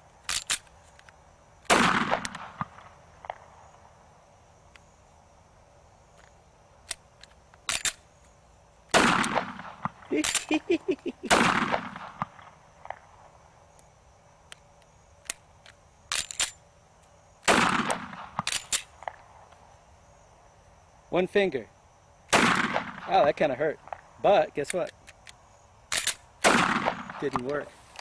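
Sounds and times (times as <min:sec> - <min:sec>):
pistol slide clicks: 0:00.2 - 0:01.2, 0:06.2 - 0:08.0, 0:24.7 - 0:26.2
pistol shots echoing: 0:01.7 - 0:03.4, 0:08.9 - 0:10.4, 0:11.3 - 0:12.5, 0:17.5 - 0:18.4, 0:22.3 - 0:23.3, 0:26.0 - 0:27.5.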